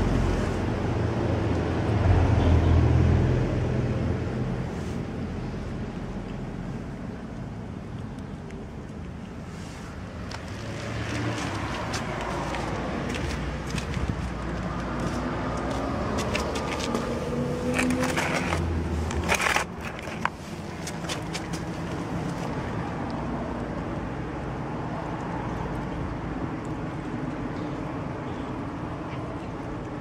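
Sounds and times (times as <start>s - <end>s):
street background noise: 0.0s - 30.0s
vehicle engine passing: 9.5s - 23.4s.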